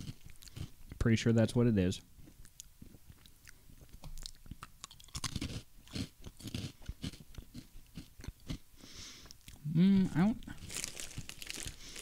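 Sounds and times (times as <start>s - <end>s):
person chewing crunchy snack: 0.0s - 1.0s, 2.2s - 8.6s, 10.4s - 12.0s.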